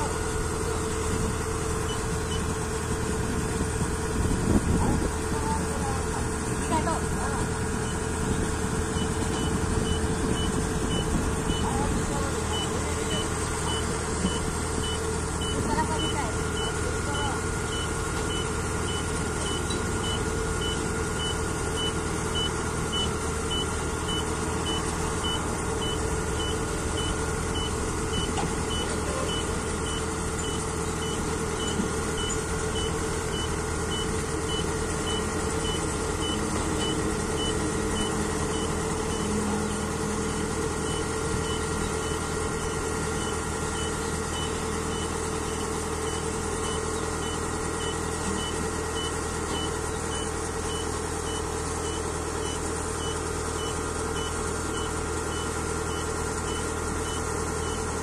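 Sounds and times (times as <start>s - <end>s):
combine harvester engine running: 0.0s - 58.0s
reversing alarm beeping: 8.9s - 57.9s.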